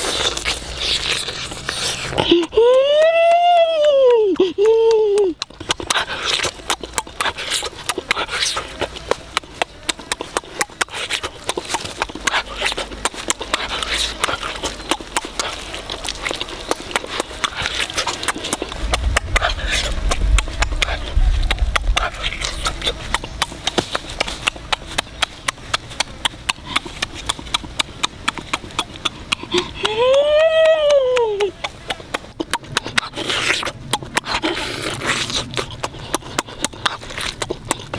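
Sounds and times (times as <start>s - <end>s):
person chewing and lip-smacking: 0.0s - 37.9s
vocal hum: 0.0s - 37.9s
low rumble: 15.8s - 26.2s.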